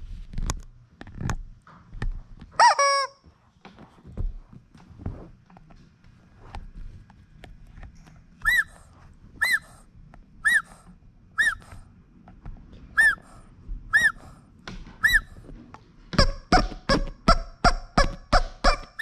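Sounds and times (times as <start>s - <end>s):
rubbery handling noises: 0.0s - 19.0s
rubber chicken toy squawking: 2.6s - 3.2s, 8.4s - 8.8s, 9.4s - 10.8s, 11.4s - 11.9s, 13.0s - 14.4s, 15.0s - 15.4s, 16.2s - 19.0s.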